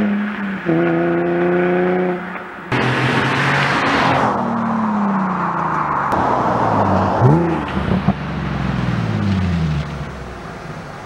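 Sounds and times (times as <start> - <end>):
engine rev: 0.0 - 11.0
car exhaust driving away: 0.7 - 11.0.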